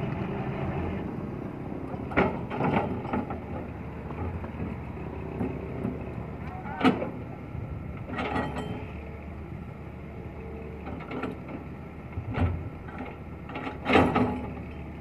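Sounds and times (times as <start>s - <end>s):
diesel machinery engine hum: 0.0s - 15.0s
knocks and clatters: 1.9s - 3.4s, 12.2s - 14.8s.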